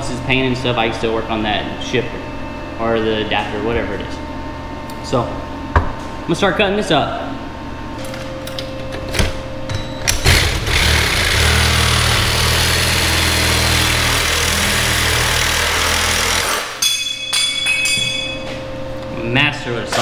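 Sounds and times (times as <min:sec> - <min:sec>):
reciprocating saw cutting steel: 0:10.3 - 0:16.8
ringing metal clinks: 0:16.8 - 0:18.6.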